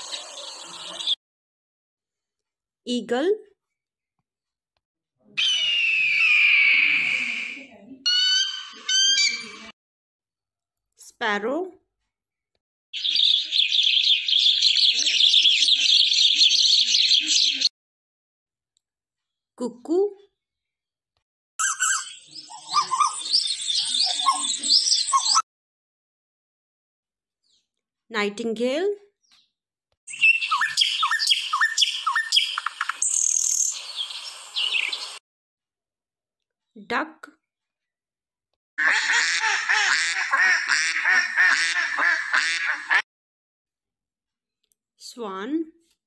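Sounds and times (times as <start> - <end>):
sparrows chirping: 0.0 - 1.2, 13.0 - 17.7, 21.6 - 25.4, 29.2 - 35.2
nightingale singing: 8.1 - 9.6, 13.0 - 17.7, 21.6 - 25.4, 30.1 - 35.2.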